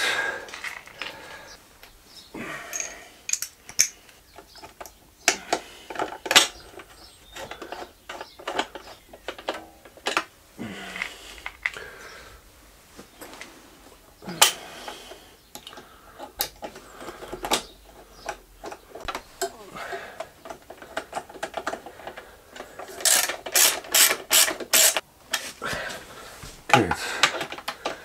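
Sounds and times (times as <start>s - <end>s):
plastic parts being handled: 0.5s - 1.3s, 2.7s - 10.3s, 15.5s - 25.6s
screwdriver clicks: 23.0s - 25.0s.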